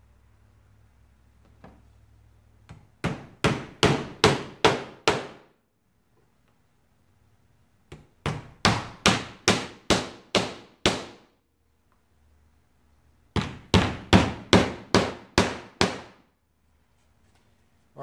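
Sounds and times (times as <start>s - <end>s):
hammer striking wood: 2.7s - 5.5s, 7.9s - 11.3s, 13.3s - 16.2s.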